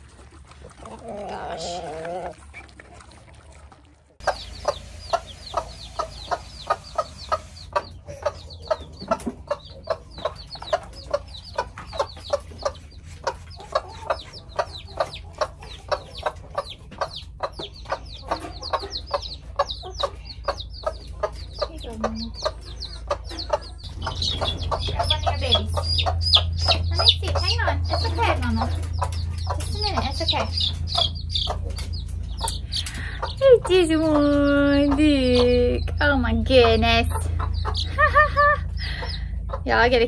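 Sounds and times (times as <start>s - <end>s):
chicks peeping: 0.0s - 40.0s
hen clucking: 0.0s - 40.0s.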